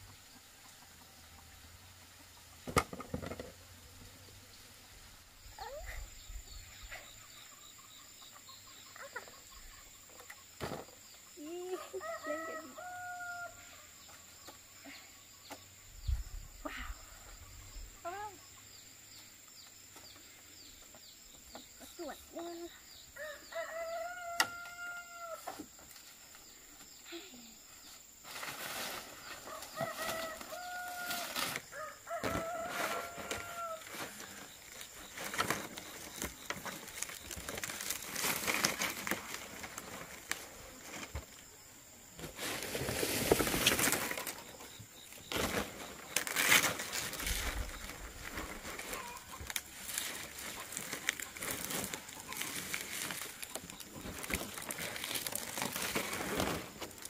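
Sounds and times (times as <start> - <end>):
roosters crowing: 11.7 - 13.9, 23.2 - 25.6, 29.2 - 34.8.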